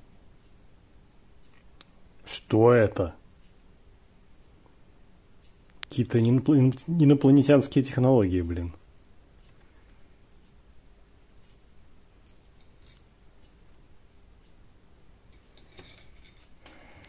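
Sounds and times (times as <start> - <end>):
small clicks and rustles: 8.6 - 10.6, 11.2 - 14.6, 15.2 - 17.0.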